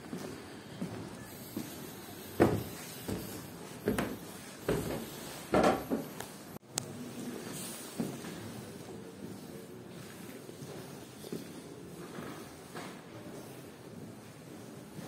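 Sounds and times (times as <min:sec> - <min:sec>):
footsteps on hollow wooden steps: 0:02.4 - 0:05.1.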